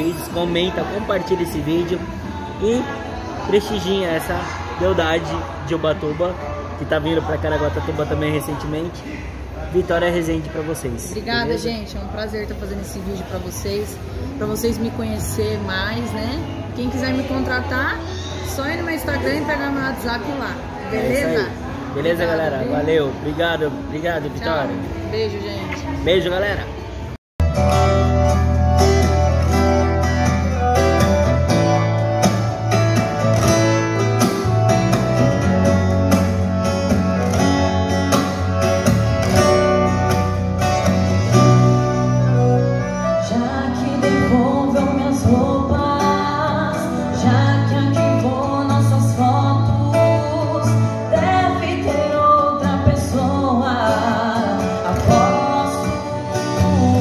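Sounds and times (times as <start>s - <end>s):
acoustic guitar playing: 0.0s - 57.0s
woman singing into microphone: 43.2s - 57.0s.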